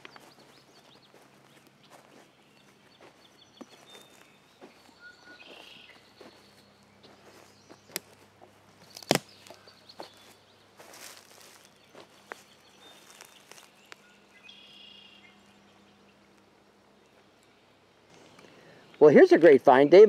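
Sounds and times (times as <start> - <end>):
faint bird chirps: 0.0 - 8.0, 8.8 - 19.1
footsteps on forest floor: 0.0 - 15.6.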